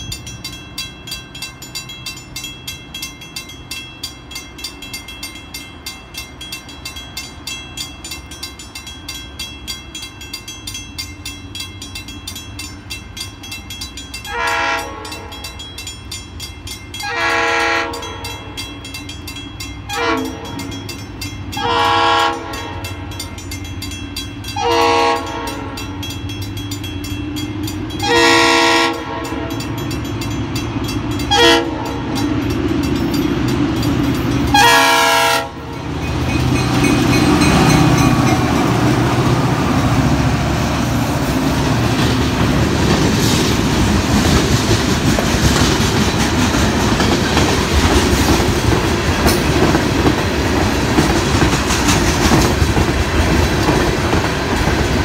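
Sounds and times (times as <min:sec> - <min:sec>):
crossing bell ringing: 0:00.0 - 0:41.3
locomotive air horn blasts: 0:14.3 - 0:15.5, 0:17.0 - 0:18.4, 0:19.9 - 0:20.7, 0:21.6 - 0:23.0, 0:24.6 - 0:25.9, 0:28.0 - 0:29.6, 0:31.3 - 0:32.1, 0:34.5 - 0:35.8
locomotive engine rumble: 0:18.3 - 0:55.0.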